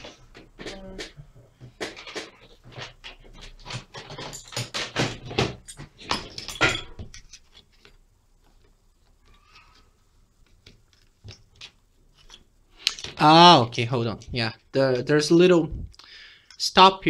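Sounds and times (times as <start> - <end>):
clicks and knocks of small parts: 1.8 - 8.7.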